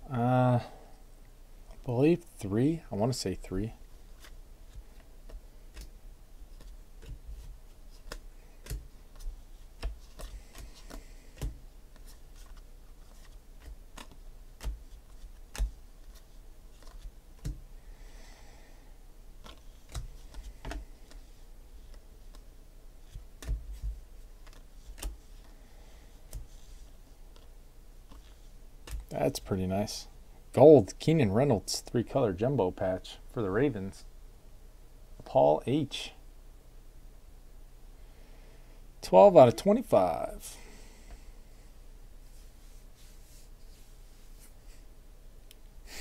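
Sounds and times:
faint low hum: 0.0s - 46.0s
cards sliding rustle: 4.0s - 17.6s, 19.4s - 27.5s, 28.1s - 29.1s
cards flipping and snapping: 4.2s - 17.6s, 19.4s - 21.2s, 23.0s - 25.5s, 28.1s - 29.1s.

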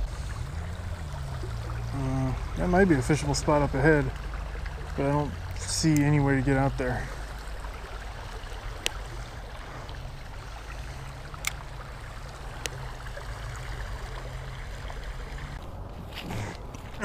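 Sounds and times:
creek water flowing: 0.0s - 17.0s.

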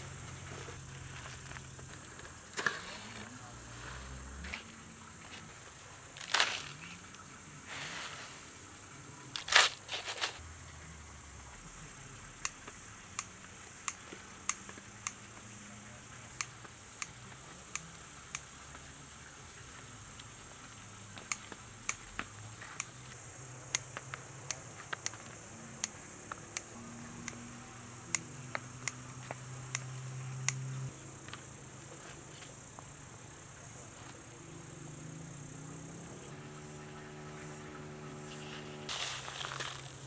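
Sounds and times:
crickets chirring: 0.0s - 40.0s
low hum: 34.7s - 40.0s.

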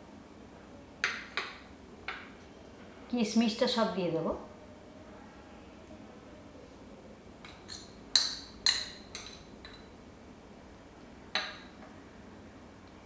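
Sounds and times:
spoon clinking against steel bowl: 7.4s - 9.9s.

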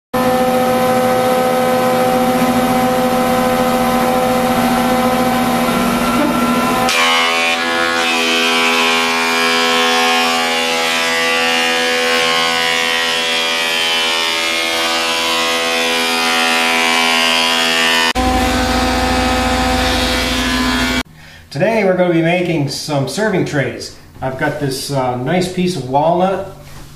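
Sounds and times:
thickness planer running: 0.2s - 21.0s.

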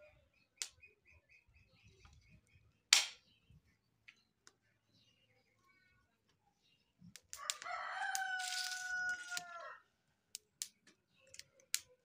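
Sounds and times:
rooster crowing: 7.4s - 9.8s.

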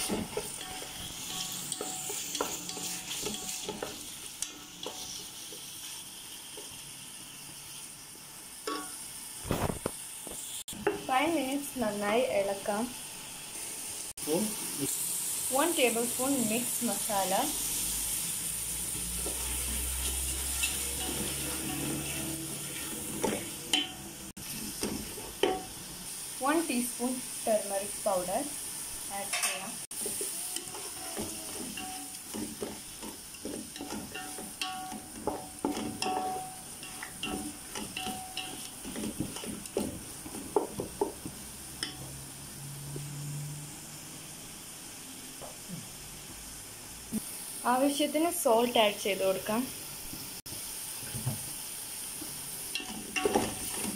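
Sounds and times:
spatula scraping pot: 0.0s - 5.6s, 18.9s - 25.6s, 29.4s - 41.4s
prawns sizzling in oil: 0.0s - 53.9s.

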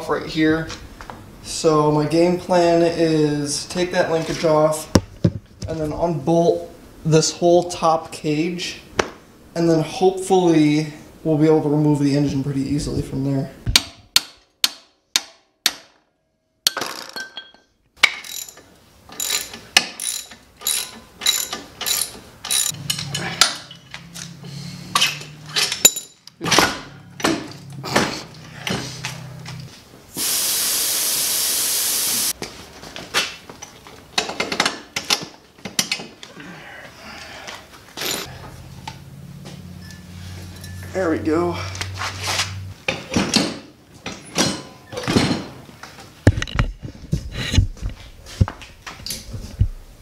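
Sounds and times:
metal tools knocking: 17.1s - 23.9s
ratchet wrench clicking: 18.1s - 18.6s, 19.2s - 23.1s
steady hiss: 30.1s - 32.4s.

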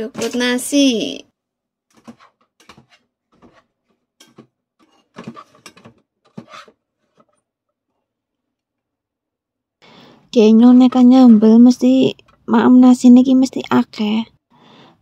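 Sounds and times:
rice paddle scraping pot: 1.9s - 7.4s.

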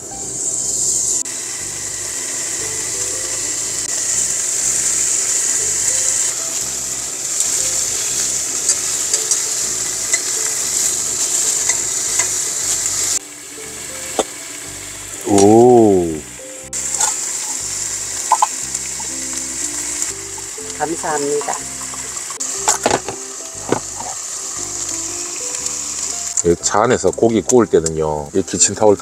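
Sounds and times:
meat sizzling in frying pan: 0.0s - 29.0s
fat popping: 18.2s - 19.2s, 21.4s - 24.2s.

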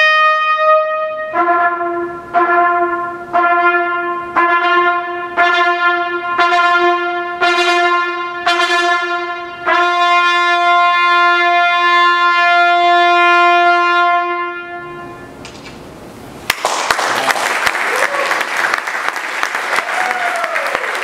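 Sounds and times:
trumpet duet: 0.0s - 15.4s
audience applauding: 16.5s - 21.0s.

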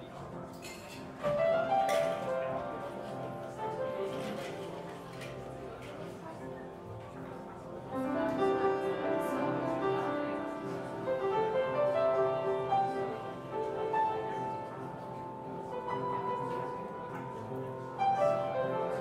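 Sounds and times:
live jazz quartet playing: 8.0s - 14.4s.

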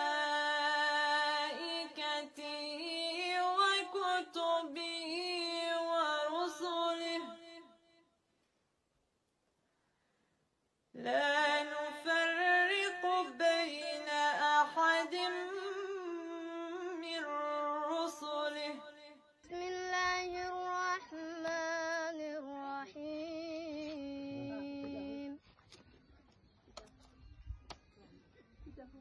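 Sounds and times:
child chanting recitation: 19.5s - 25.4s
woman chanting recitation: 19.5s - 25.4s.

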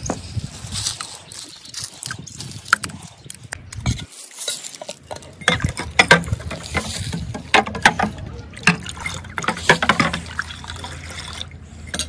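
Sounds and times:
soft water splashes: 6.4s - 12.0s.

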